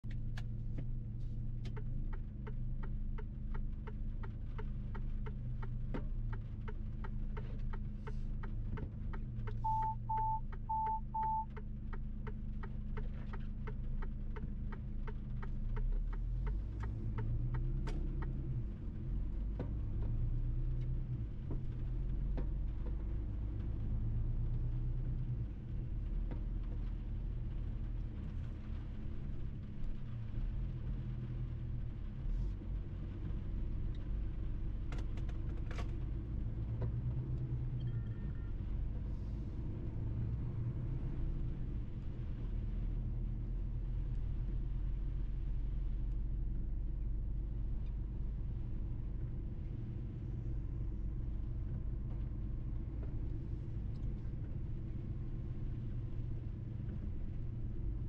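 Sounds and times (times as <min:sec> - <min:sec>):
truck engine and road rumble: 0:00.0 - 0:58.0
short beeps: 0:09.6 - 0:11.5.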